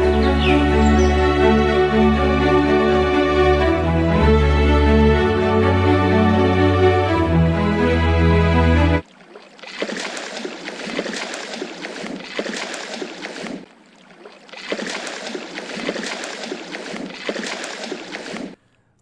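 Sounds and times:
fish thrashing and splashing: 0:09.0 - 0:18.6.

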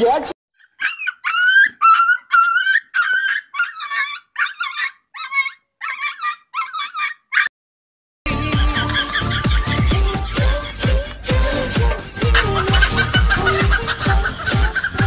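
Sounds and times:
dog whining yips: 0:00.6 - 0:07.5.

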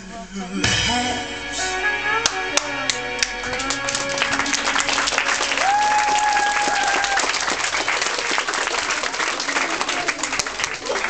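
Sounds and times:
dance music: 0:00.6 - 0:06.1
audience applauding: 0:02.2 - 0:11.0.

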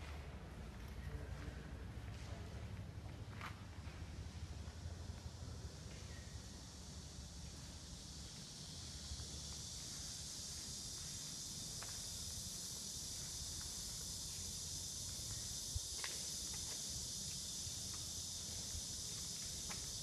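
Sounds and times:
high-pitched hiss: 0:04.6 - 0:20.0.

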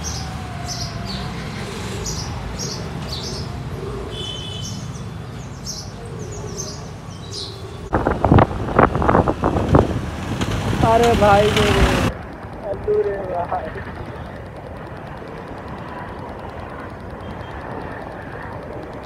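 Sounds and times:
small birds chirping: 0:00.0 - 0:08.0, 0:12.5 - 0:19.0
steady low rumble: 0:07.8 - 0:19.0.

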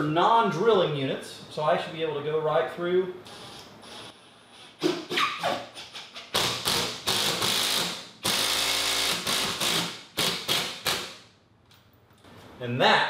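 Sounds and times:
power driver driving screw: 0:06.4 - 0:11.2.

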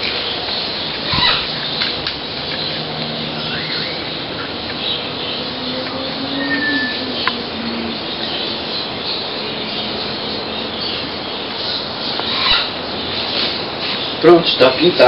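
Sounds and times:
steady background hiss: 0:00.0 - 0:15.0
faint high tone: 0:05.4 - 0:07.9.

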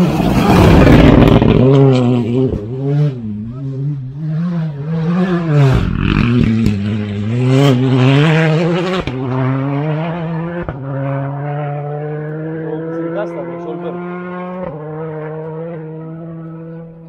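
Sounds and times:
rush of noise: 0:00.0 - 0:01.8
rally car engine revving: 0:00.0 - 0:17.0.

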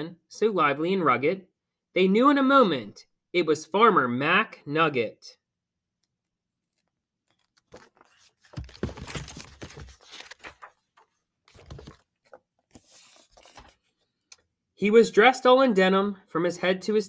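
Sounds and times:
book pages rustling: 0:06.6 - 0:14.2.

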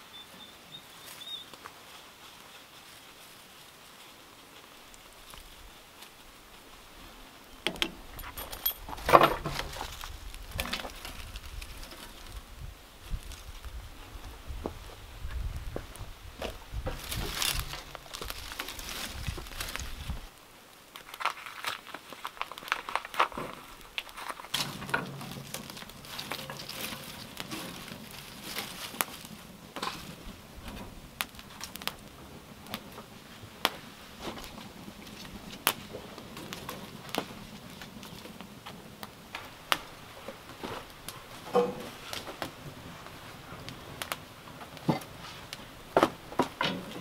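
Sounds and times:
low fire hiss: 0:00.0 - 0:47.0
twigs burning and crackling: 0:00.8 - 0:47.0.

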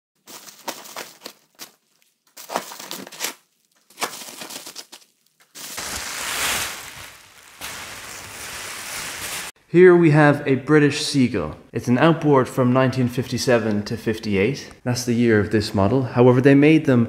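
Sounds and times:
bubble wrap crinkling and crackling: 0:00.2 - 0:09.6
bubble wrap rustling: 0:00.2 - 0:09.6.

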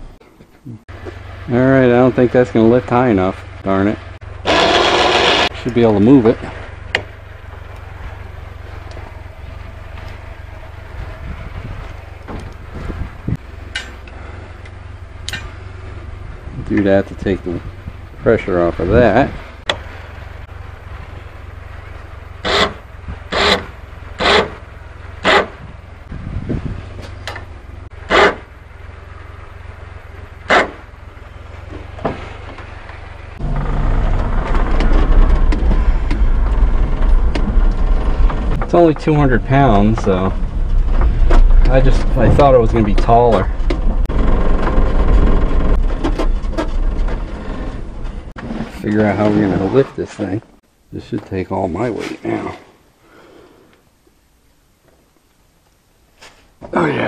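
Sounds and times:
low steady rumble: 0:00.0 - 0:51.8
small truck engine running: 0:00.9 - 0:48.6
short loud bursts of noise: 0:04.4 - 0:05.6.

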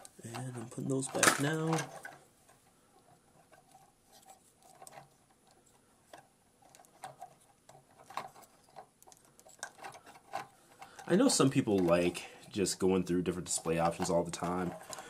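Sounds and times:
plastic toy parts clicking: 0:03.4 - 0:12.2, 0:13.5 - 0:15.0.

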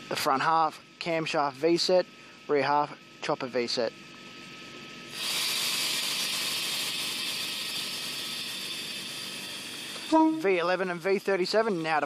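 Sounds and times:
compressed air hissing from train: 0:05.1 - 0:12.0.

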